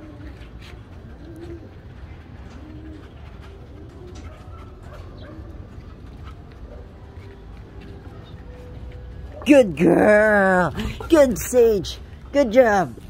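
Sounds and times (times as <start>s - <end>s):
pigeons cooing: 0.0s - 7.2s.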